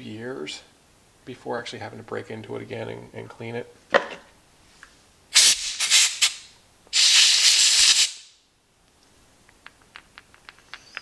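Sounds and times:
air blow gun hissing bursts: 5.3 - 8.4.

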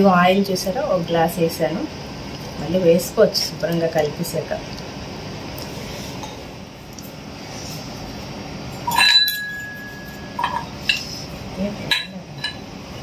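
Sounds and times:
steel kitchen vessels clinking: 8.7 - 13.0.

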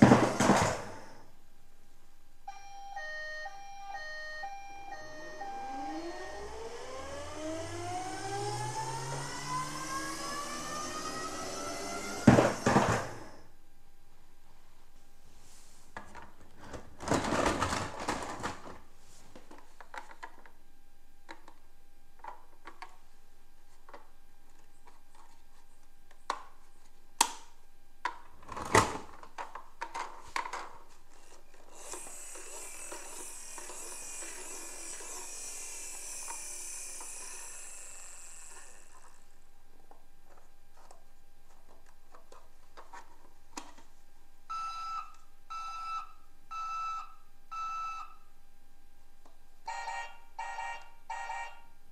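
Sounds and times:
steady high whirring: 3.2 - 13.5, 31.5 - 39.5.

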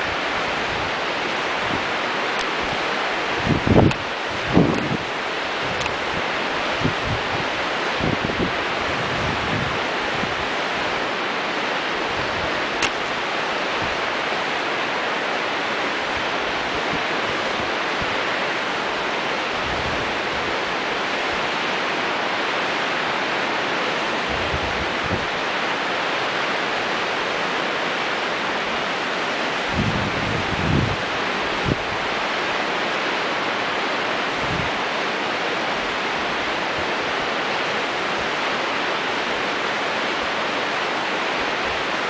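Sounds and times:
river whitewater rushing: 0.0 - 42.0
wind on microphone: 0.0 - 42.0
low wind thumps: 3.4 - 5.0
sharp click: 12.8 - 13.0.

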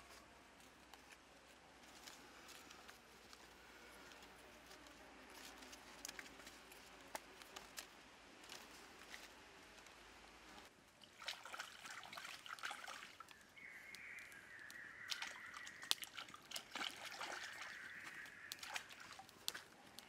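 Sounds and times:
wood fire crackling: 0.0 - 11.2, 13.2 - 20.0
water sloshing and trickling: 10.6 - 20.0.

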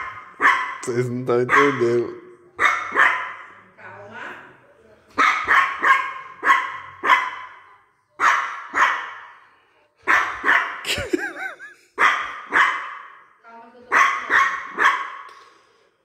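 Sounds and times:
dog barking sharply: 0.0 - 0.9, 1.5 - 2.0, 2.6 - 3.6, 5.2 - 7.6, 8.2 - 9.3, 10.1 - 10.8, 12.0 - 13.2, 13.9 - 15.3.

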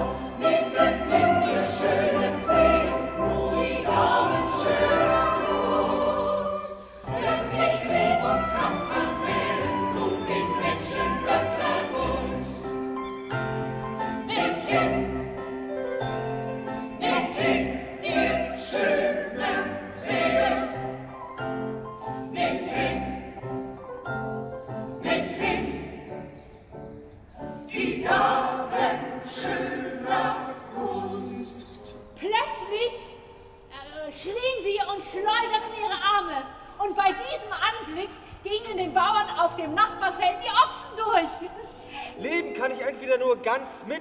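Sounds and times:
mixed choir singing: 0.0 - 32.1.

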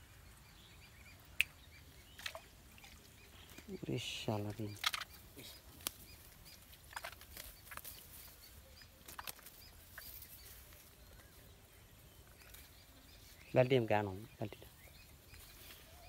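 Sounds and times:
faint high bird chirps: 0.0 - 16.0.

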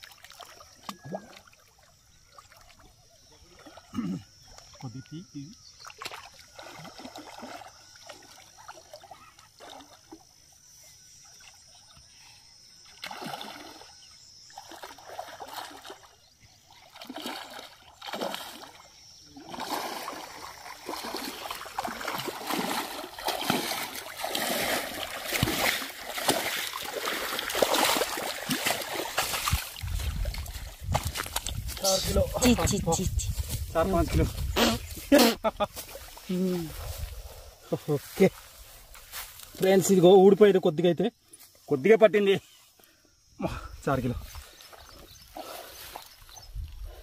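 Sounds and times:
fish splashing in water: 5.8 - 10.2, 12.8 - 31.7.

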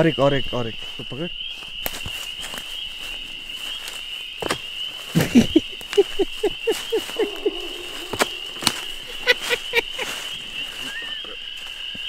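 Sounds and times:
night insects droning: 0.0 - 12.0
short pitched calls: 6.9 - 11.7.

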